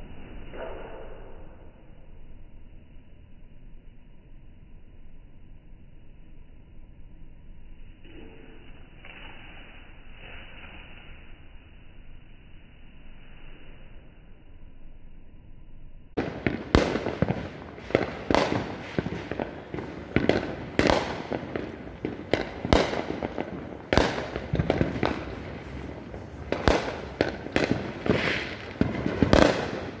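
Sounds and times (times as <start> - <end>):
fireworks bangs: 16.2 - 30.0
fireworks pops and crackles: 16.2 - 30.0.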